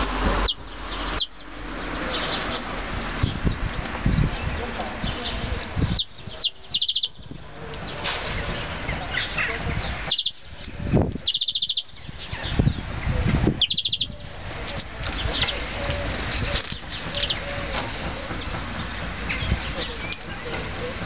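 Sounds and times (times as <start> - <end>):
songbird fast trill: 5.1 - 7.2, 9.1 - 12.8.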